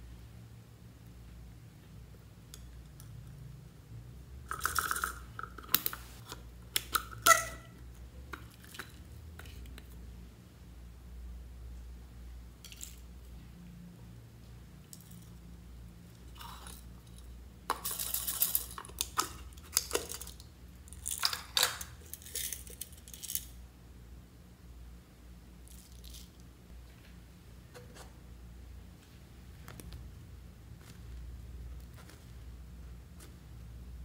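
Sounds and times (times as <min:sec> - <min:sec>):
craft bits rattling into a bowl: 0:17.7 - 0:19.2.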